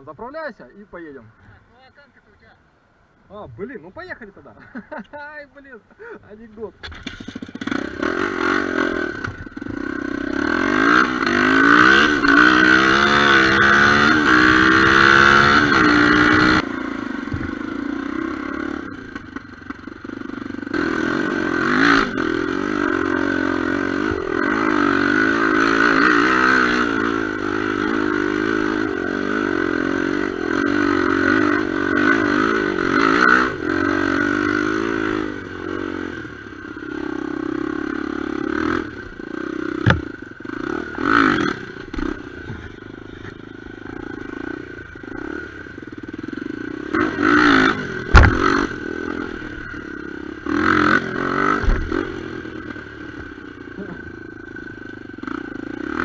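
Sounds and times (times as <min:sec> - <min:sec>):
motorcycle clattering over ground: 0:06.8 - 0:07.8, 0:39.8 - 0:40.1, 0:48.0 - 0:48.6
motorcycle engine revving: 0:06.8 - 0:56.0.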